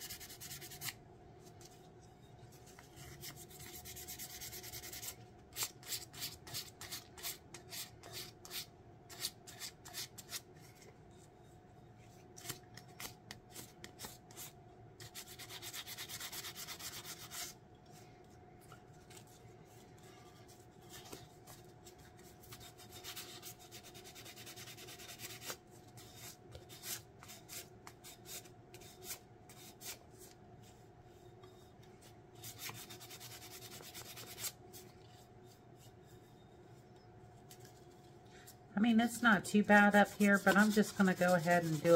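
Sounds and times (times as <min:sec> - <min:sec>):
sandpaper scratching strokes: 0:39.8 - 0:41.9.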